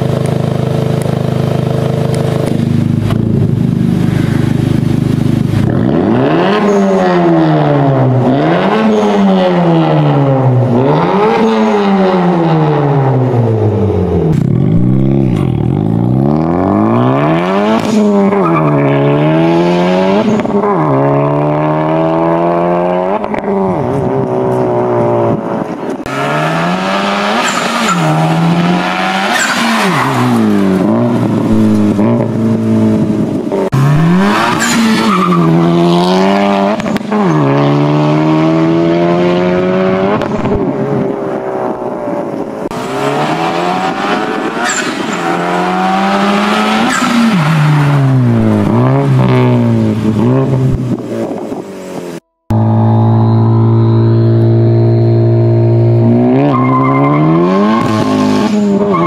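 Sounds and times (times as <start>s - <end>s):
car engine accelerating hard: 0.0s - 59.0s
exhaust cracks: 14.2s - 19.1s.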